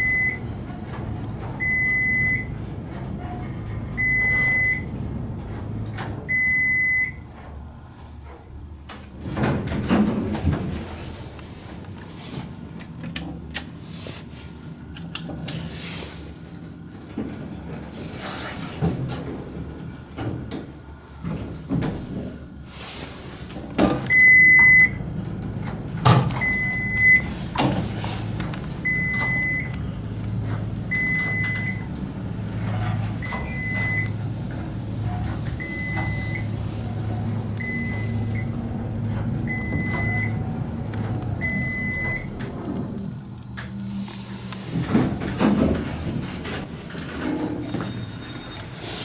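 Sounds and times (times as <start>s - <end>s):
elevator door closing: 0.0s - 7.6s, 8.9s - 11.8s, 23.7s - 49.0s
elevator car humming: 0.0s - 49.0s.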